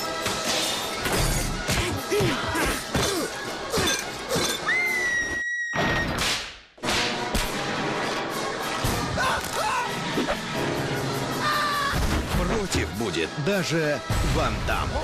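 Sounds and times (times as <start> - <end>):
trailer music: 6.3 - 15.0
woman screaming: 11.4 - 12.0.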